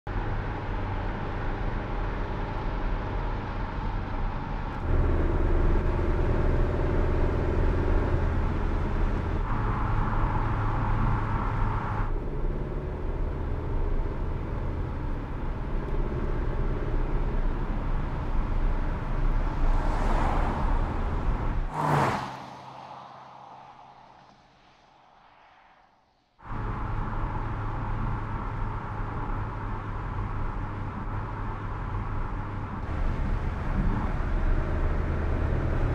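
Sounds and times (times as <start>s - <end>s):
car engine and tyre noise: 0.1s - 35.9s
whoosh: 19.4s - 26.2s.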